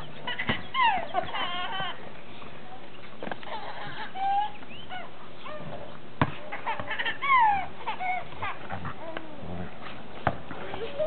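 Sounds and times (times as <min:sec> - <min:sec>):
basketball bouncing on pavement: 0:00.3 - 0:01.4, 0:06.2 - 0:07.0, 0:10.2 - 0:10.8
baby laughing in squeals: 0:00.3 - 0:02.0.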